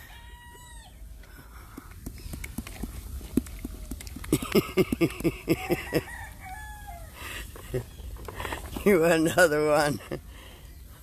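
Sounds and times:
horse lip clicks and smacks: 1.7 - 5.3
horse lip flapping: 1.8 - 5.4.

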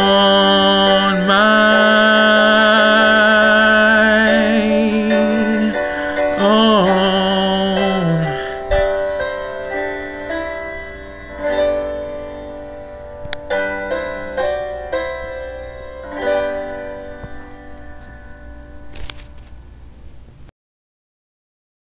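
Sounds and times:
slow piano chords: 0.0 - 19.9.

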